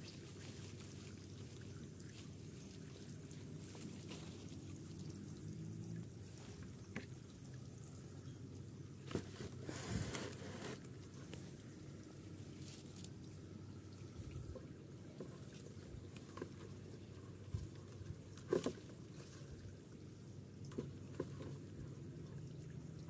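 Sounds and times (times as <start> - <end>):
water sloshing: 0.0 - 8.2
low background noise: 0.0 - 23.0
plastic bucket rustling and knocks: 9.0 - 10.8, 18.4 - 19.0.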